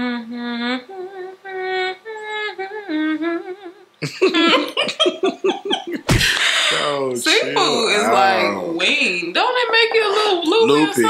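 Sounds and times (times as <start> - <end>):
person humming a slow tune: 0.0 - 4.2
voices laughing: 4.0 - 8.4, 9.6 - 11.0.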